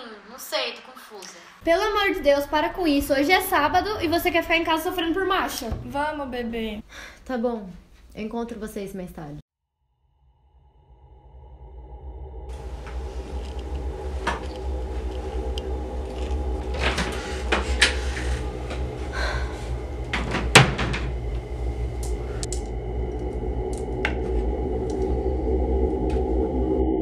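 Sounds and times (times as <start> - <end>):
steady low drone: 10.1 - 27.0.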